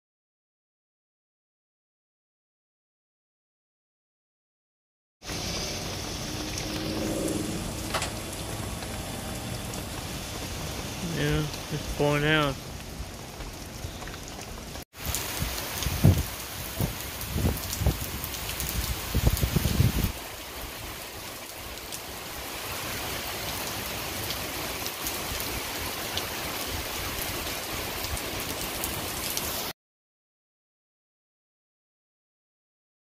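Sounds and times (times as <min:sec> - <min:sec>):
heavy rain pouring: 0:05.2 - 0:29.7.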